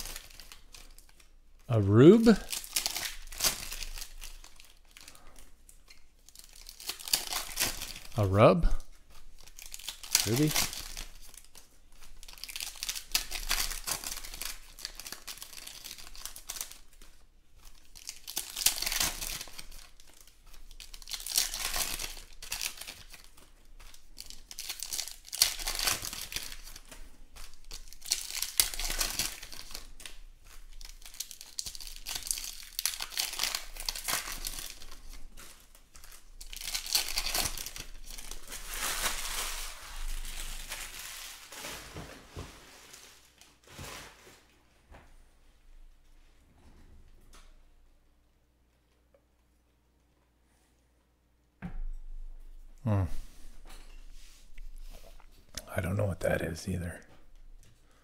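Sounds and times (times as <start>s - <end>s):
foil wrappers crinkling and tearing: 0.0s - 44.5s
cards being handled: 8.9s - 39.8s.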